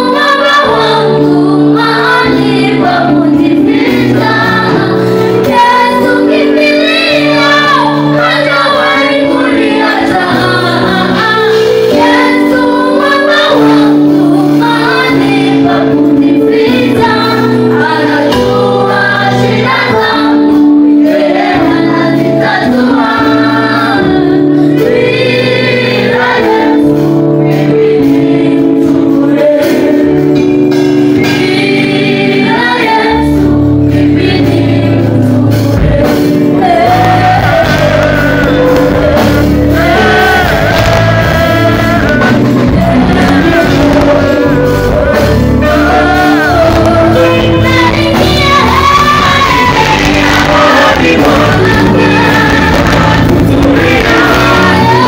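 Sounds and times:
woman singing lead: 0:00.0 - 0:30.6, 0:31.2 - 0:55.0
gospel worship singing with band: 0:00.0 - 0:55.0
heavy bass: 0:13.6 - 0:55.0.

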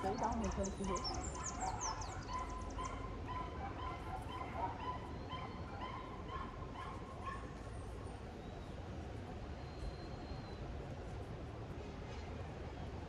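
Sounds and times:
dog yipping: 0:00.9 - 0:07.5.

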